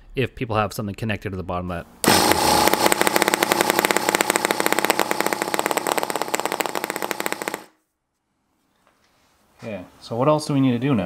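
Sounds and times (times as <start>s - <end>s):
small engine fast sharp pulses: 2.0s - 7.8s.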